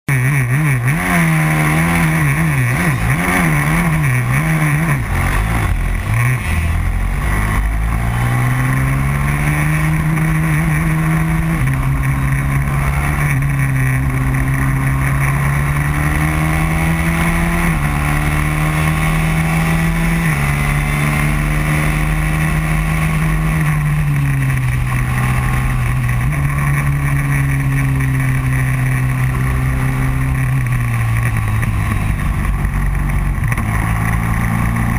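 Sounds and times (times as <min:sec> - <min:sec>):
racing kart engine: 0:00.1 - 0:34.9.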